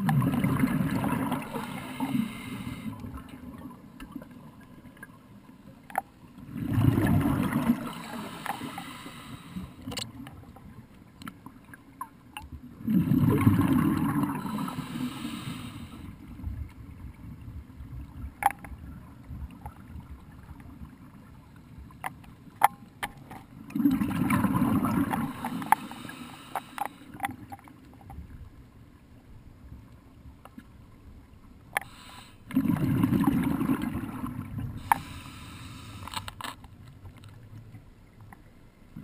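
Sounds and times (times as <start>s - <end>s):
air bubbling underwater: 6.5s - 8.0s, 12.8s - 14.6s, 23.7s - 25.5s, 32.5s - 34.9s.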